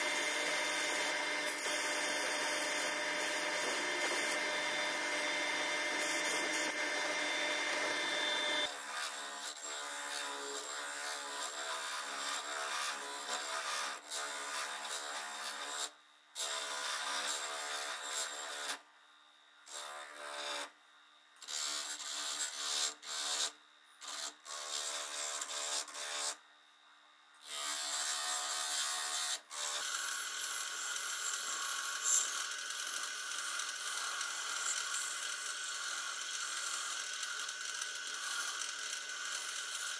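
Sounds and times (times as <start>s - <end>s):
buffing wheel humming: 1.5s - 8.7s.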